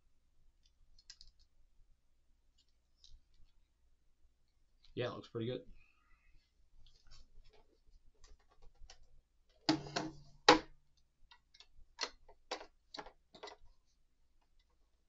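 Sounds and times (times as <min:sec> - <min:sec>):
plastic clicks and knocks: 0:11.3 - 0:13.6.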